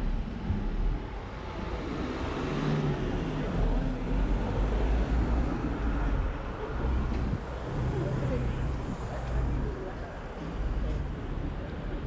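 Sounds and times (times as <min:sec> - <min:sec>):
road noise: 0:00.0 - 0:12.0
vehicle engine rumble: 0:00.0 - 0:12.0.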